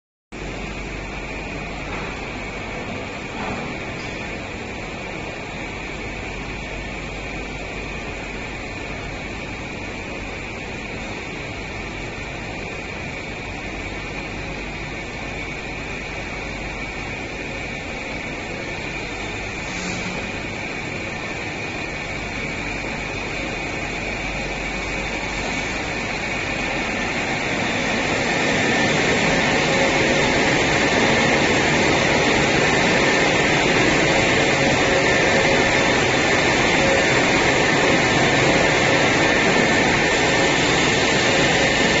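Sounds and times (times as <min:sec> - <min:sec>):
air-conditioner and machinery drone: 0:00.3 - 0:42.0
high whine: 0:00.4 - 0:42.0.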